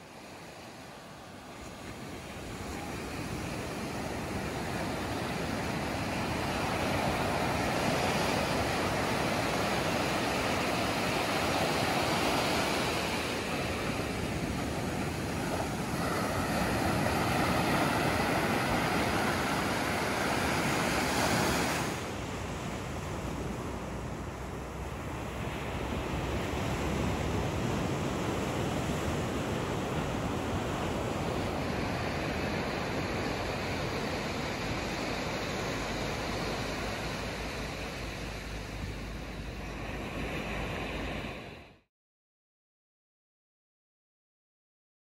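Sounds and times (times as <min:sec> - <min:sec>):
surf breaking on beach: 0:00.1 - 0:41.8.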